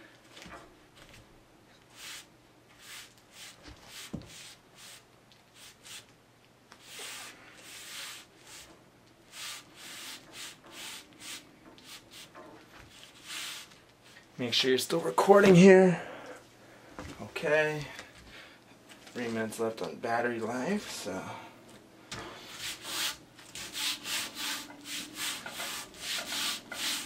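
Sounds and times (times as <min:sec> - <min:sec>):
hand rubbing board swishes: 0:22.4 - 0:27.0.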